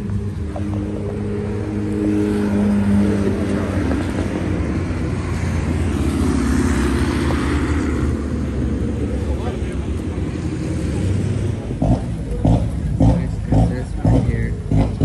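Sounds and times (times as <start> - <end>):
car engine running: 8.0 - 15.0.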